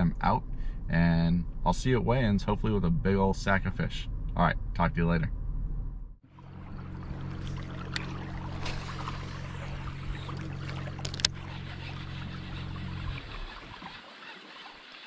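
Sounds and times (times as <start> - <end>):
outboard motor running: 6.2 - 15.0
water noise: 6.2 - 15.0.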